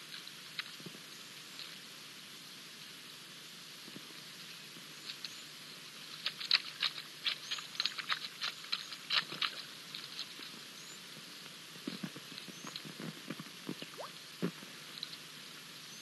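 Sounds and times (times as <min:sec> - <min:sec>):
small birds chirping: 0:04.5 - 0:16.0.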